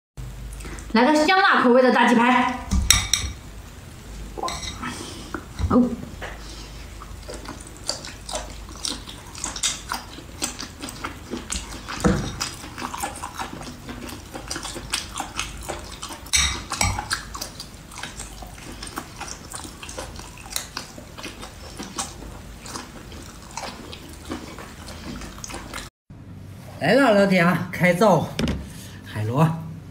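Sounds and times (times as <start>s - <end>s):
wet chewing and slurping: 0.4s - 0.9s, 4.4s - 25.9s.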